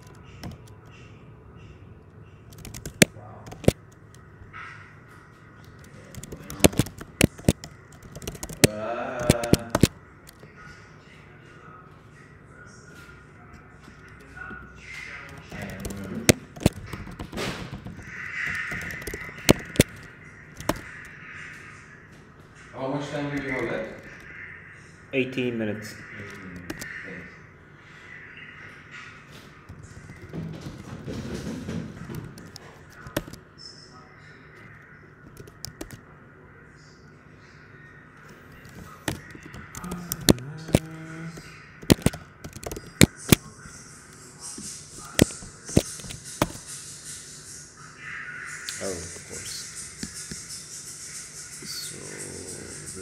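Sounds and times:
laptop keyboard clicks: 2.5s - 4.2s, 5.7s - 10.4s, 15.3s - 20.0s, 35.3s - 36.0s, 41.8s - 43.5s.

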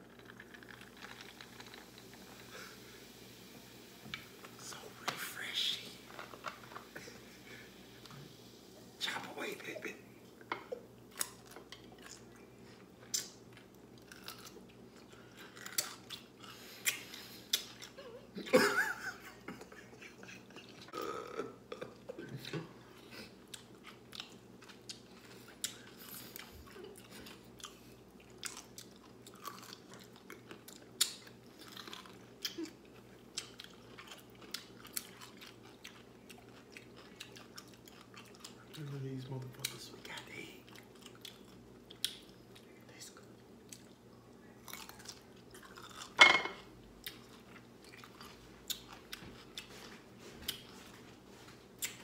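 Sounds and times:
wet chewing: 23.4s - 38.9s, 47.0s - 51.0s.

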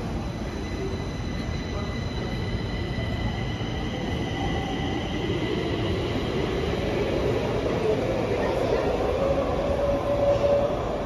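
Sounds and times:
train wheels squealing: 0.0s - 7.0s, 9.2s - 11.0s
low train rumble: 0.0s - 11.0s.

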